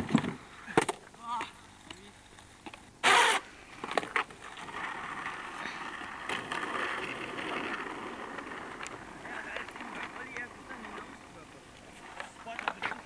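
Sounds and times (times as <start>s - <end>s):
skateboard wheels rolling on asphalt: 0.0s - 13.0s
skateboard clacks: 3.8s - 13.0s.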